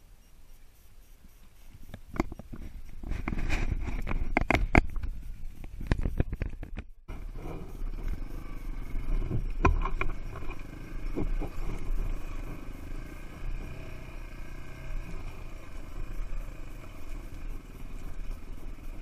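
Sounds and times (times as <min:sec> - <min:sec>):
dirt bike engine at low revs: 0:00.0 - 0:19.0
buffeting on microphone: 0:00.4 - 0:12.6
bike knocking over rough ground: 0:09.1 - 0:12.0.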